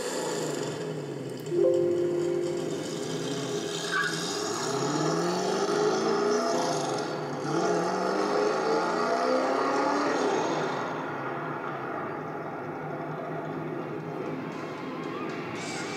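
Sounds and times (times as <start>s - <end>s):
car engine accelerating hard: 3.9s - 11.3s.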